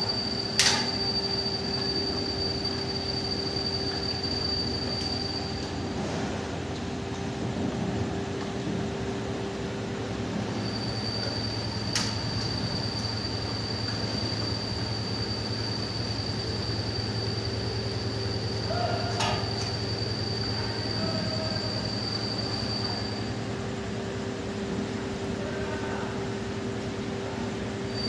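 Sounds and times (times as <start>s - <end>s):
high-pitched whine: 0.0s - 6.3s, 10.3s - 23.6s.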